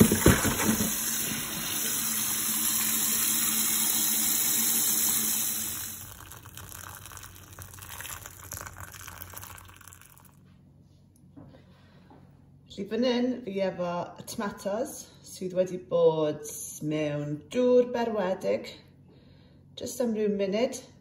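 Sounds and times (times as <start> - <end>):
tap water rushing into colander: 0.0 - 10.3.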